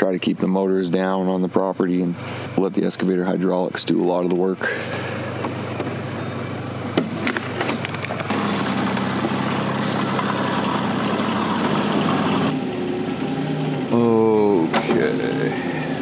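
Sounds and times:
diesel engine idling: 4.5 - 16.0.

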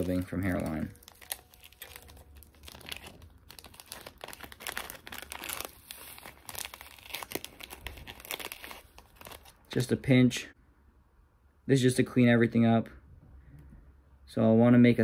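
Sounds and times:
plastic bag crinkling: 0.0 - 9.8.

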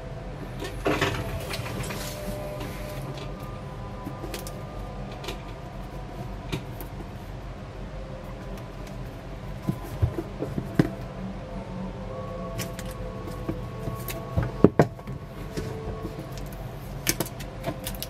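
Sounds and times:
steady background hum: 0.0 - 18.0
cardboard box being handled: 8.4 - 11.0.

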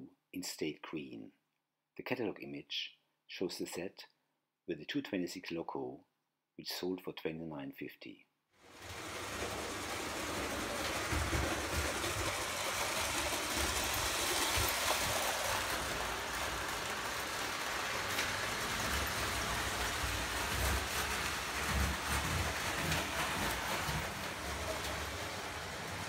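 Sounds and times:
toy trains rolling on metal track: 8.7 - 26.0.

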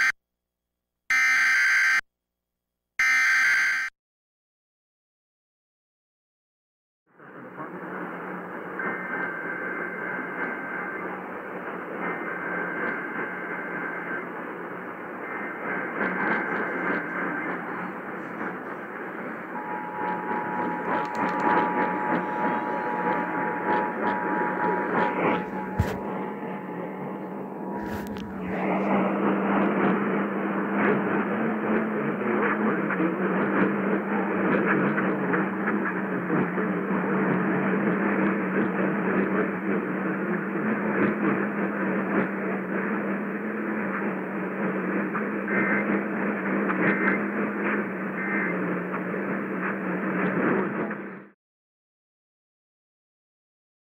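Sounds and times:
steady low hum: 7.2 - 51.1
radio static hiss: 7.3 - 29.8, 45.1 - 49.8
alert data bursts over radio: 15.2 - 26.6
two-tone attention signal: 15.2 - 28.5
clicks: 20.1 - 24.1.

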